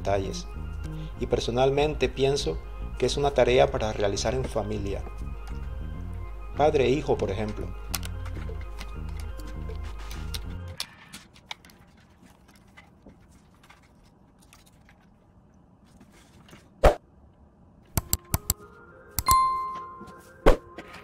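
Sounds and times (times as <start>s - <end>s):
bell-like ding: 19.2s - 20.1s.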